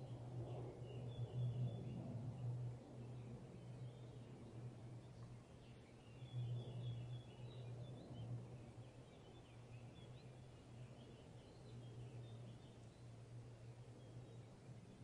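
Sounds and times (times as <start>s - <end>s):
small birds chirping: 3.0s - 15.0s.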